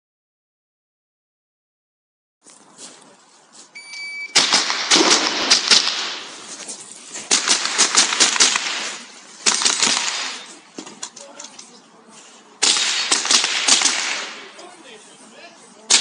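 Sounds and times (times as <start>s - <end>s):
shot timer beep: 3.8s - 4.4s
rifle shots: 4.3s - 6.5s, 7.2s - 10.6s, 12.6s - 14.6s.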